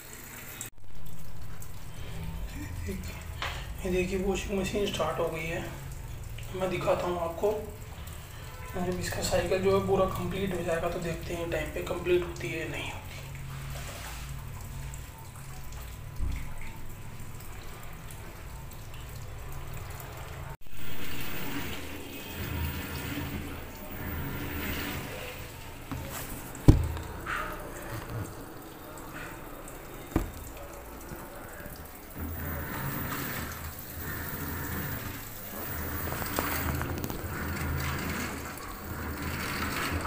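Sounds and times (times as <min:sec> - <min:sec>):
washing machine running: 0:00.0 - 0:40.0
water swishing in drum: 0:00.0 - 0:40.0.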